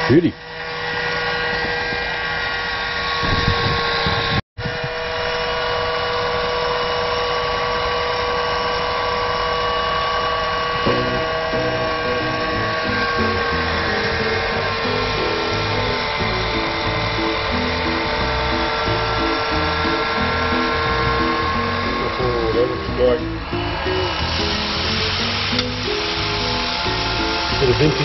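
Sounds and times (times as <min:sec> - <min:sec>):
rotisserie motor whine: 0:00.0 - 0:28.0
barbecue hiss: 0:10.8 - 0:28.0
background music: 0:10.9 - 0:28.0.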